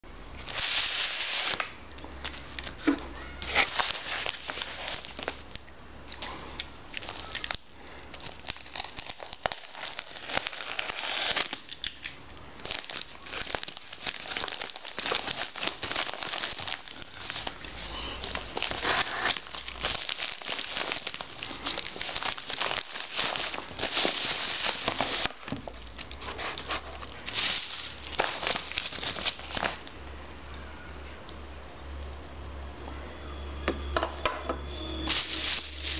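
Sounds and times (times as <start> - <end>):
plastic bag rustling: 0.4 - 5.6, 6.9 - 11.9, 12.6 - 30.1, 35.0 - 35.9
plastic and paper crinkling: 0.4 - 31.4, 35.0 - 35.9.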